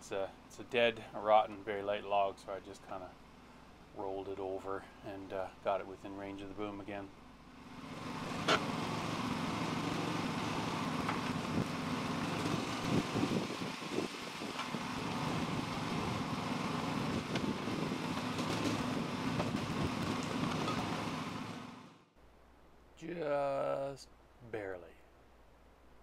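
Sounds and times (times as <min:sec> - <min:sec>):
tractor engine running: 0:07.4 - 0:22.0.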